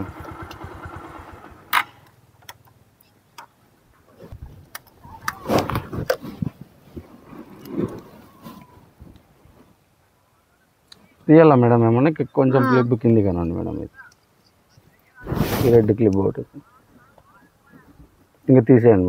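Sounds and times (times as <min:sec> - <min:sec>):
motorbike engine idling: 0:00.0 - 0:02.8.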